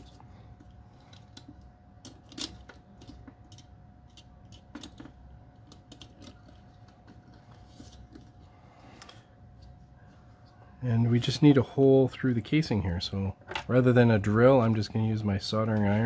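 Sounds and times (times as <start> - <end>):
wires and cable clicking and tapping: 0.0 - 8.4
faint steady hum: 0.0 - 16.0.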